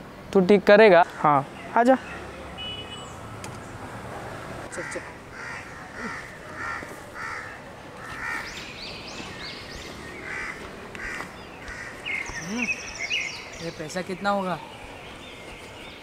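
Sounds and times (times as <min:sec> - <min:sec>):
crows cawing: 0:04.7 - 0:08.7, 0:10.1 - 0:12.5
high bird chirps: 0:08.3 - 0:16.0.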